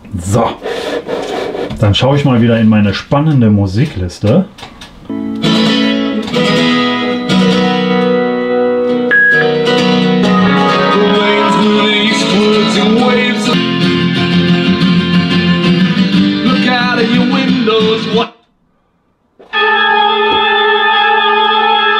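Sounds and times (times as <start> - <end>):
rock song through small speaker: 5.1 - 18.5, 19.4 - 21.9.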